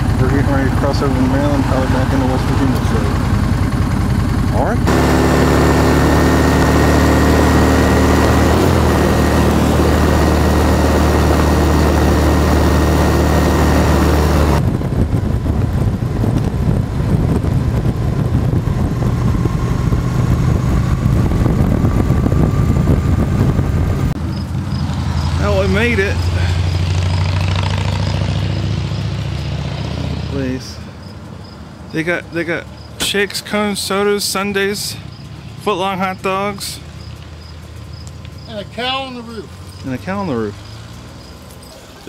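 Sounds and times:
wind rushing over microphone: 0:00.0 - 0:28.8
motorcycle engine running: 0:00.0 - 0:42.0.

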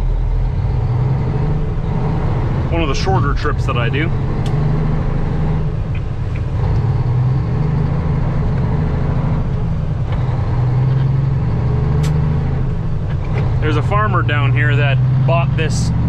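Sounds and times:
diesel truck engine droning: 0:00.0 - 0:16.0
road noise: 0:00.0 - 0:16.0
short click: 0:12.0 - 0:12.2.

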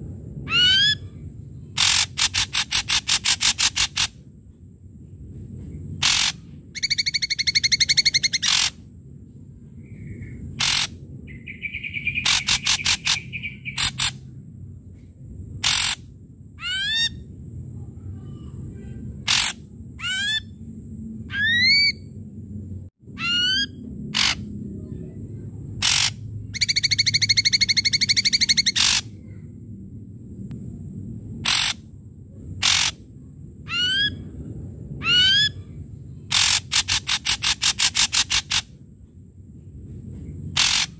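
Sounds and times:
bird singing: 0:06.0 - 0:08.8, 0:09.6 - 0:14.1, 0:21.2 - 0:22.2, 0:23.1 - 0:29.4.

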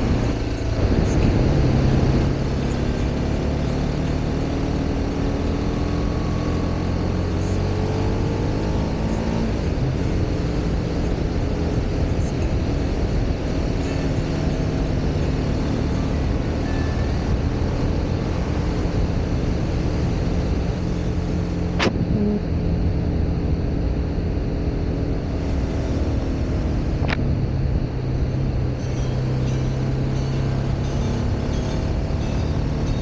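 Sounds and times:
wind rushing on microphone: 0:00.0 - 0:03.0
motorcycle engine running: 0:00.0 - 0:33.0.

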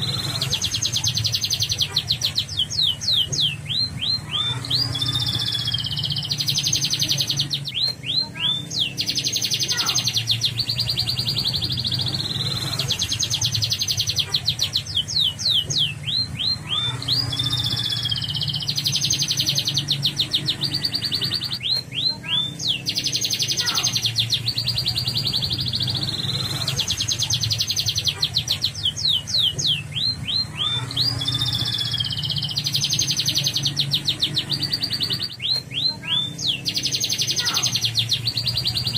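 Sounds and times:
canary singing: 0:00.0 - 0:38.9.

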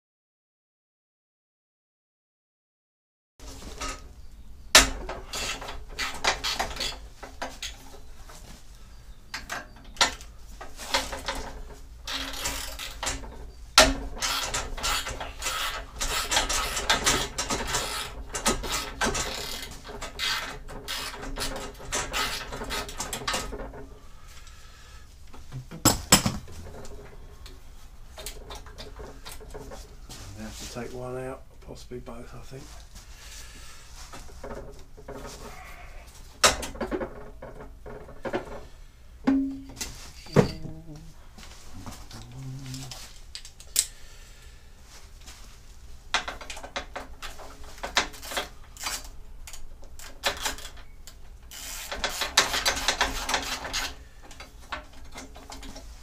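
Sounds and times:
sharp knocks: 0:25.5 - 0:26.8, 0:39.2 - 0:40.8.

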